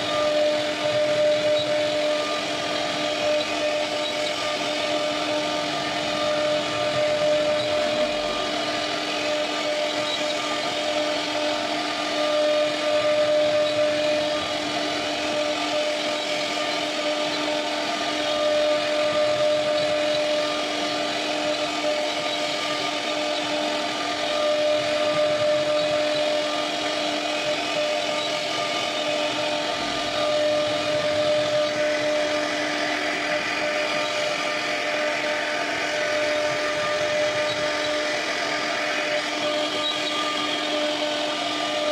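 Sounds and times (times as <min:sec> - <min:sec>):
bit cutting through wood: 0:00.0 - 0:41.9
router spindle high whine: 0:00.0 - 0:41.9.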